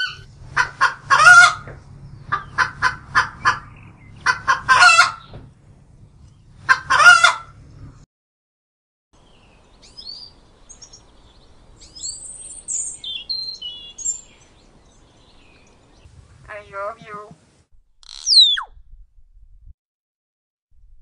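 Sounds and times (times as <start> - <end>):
chickens clucking: 0.0 - 5.4, 6.6 - 7.6
small birds chirping: 9.2 - 17.3, 18.0 - 18.7.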